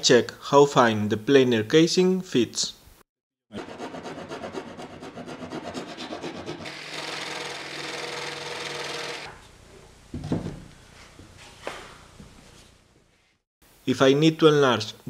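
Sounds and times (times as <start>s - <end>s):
rasp filing wood: 3.6s - 9.3s
jigsaw cutting: 6.2s - 9.3s.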